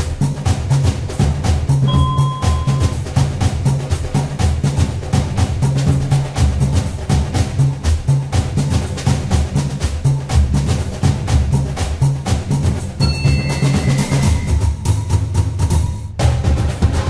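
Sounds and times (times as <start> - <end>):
drum beat: 0.0 - 17.0
high held notes: 1.9 - 3.0
repeating bass line: 1.9 - 3.0.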